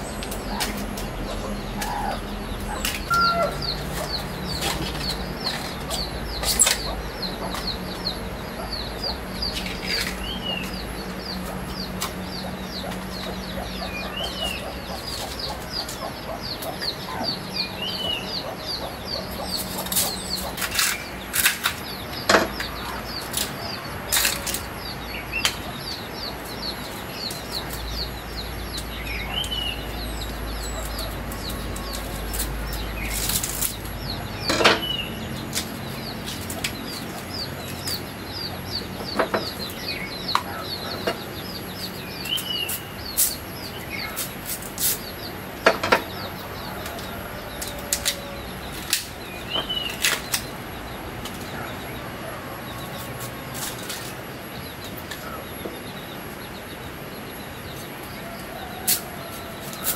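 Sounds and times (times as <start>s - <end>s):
birds chirping: 0.0s - 59.9s
knife cutting bamboo shoots: 30.8s - 33.9s.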